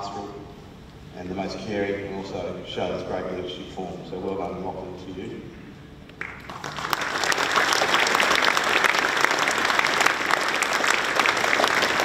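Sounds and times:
crowd applauding: 0:06.2 - 0:12.0.

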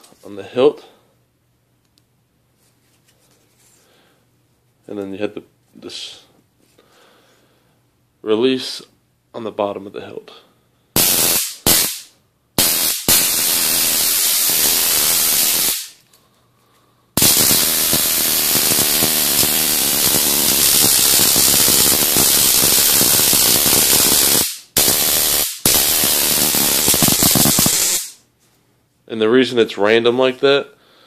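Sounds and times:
electric spark crackling: 0:11.0 - 0:16.0, 0:17.2 - 0:28.2.

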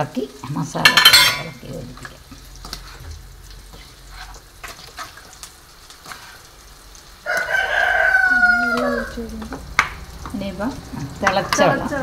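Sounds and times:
spatula scraping a pan: 0:00.8 - 0:06.8
rooster crowing: 0:07.2 - 0:09.3.

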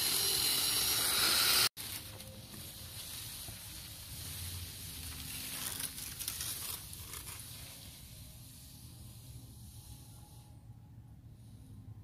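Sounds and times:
steady high hiss: 0:00.0 - 0:10.8
faint rustling and crackling: 0:01.8 - 0:08.4.

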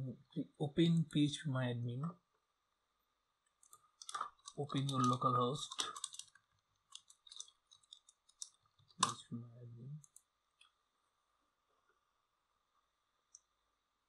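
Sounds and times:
keyboard typing: 0:03.6 - 0:09.2, 0:10.0 - 0:10.3.

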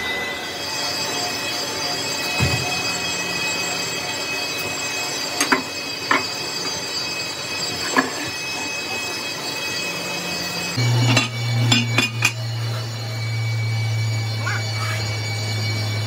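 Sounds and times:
high-pitched metallic machine squeal: 0:00.0 - 0:16.0
low hum: 0:09.9 - 0:16.0.

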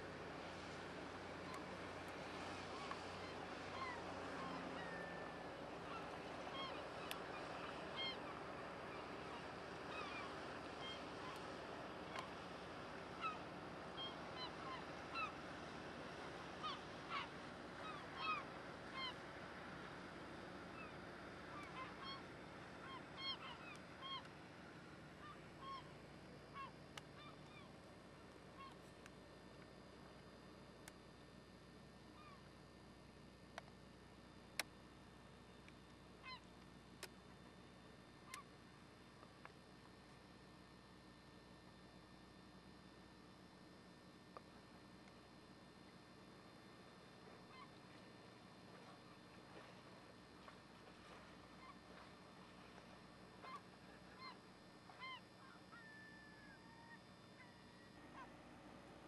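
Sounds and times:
steady low hum: 0:00.0 - 0:59.0
gulls calling: 0:02.7 - 0:12.4, 0:13.1 - 0:15.4, 0:16.6 - 0:19.3, 0:20.7 - 0:24.3, 0:25.2 - 0:27.8, 0:28.5 - 0:28.9, 0:32.1 - 0:32.5, 0:51.1 - 0:52.1, 0:53.4 - 0:58.4.

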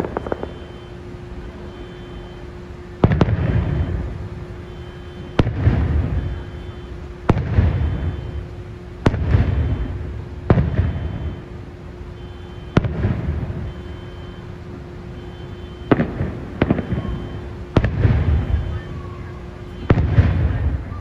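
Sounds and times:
firework shells bursting: 0:00.0 - 0:00.9
rolling echo rumble: 0:00.0 - 0:21.0.

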